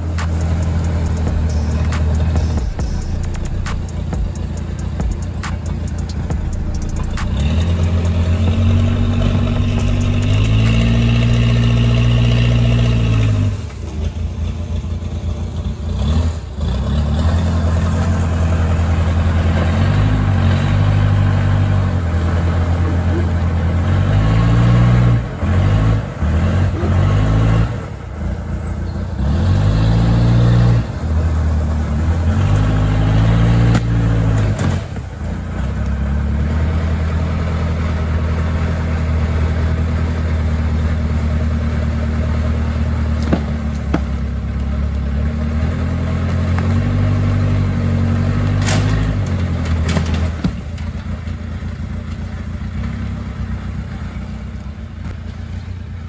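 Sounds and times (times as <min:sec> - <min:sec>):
large engine revving: 0:00.0 - 0:51.2.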